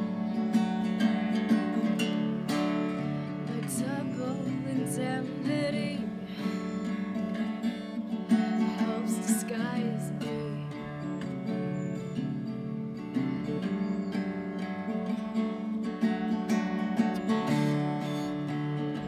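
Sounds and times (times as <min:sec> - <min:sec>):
acoustic guitar chords: 0:00.0 - 0:19.0
woman singing: 0:03.4 - 0:06.8, 0:08.4 - 0:11.0.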